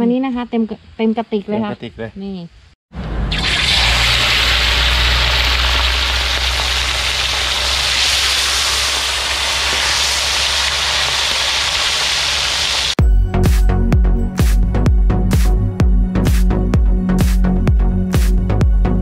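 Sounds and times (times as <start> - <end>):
low rumble: 2.9 - 8.0
water rushing: 3.2 - 13.0.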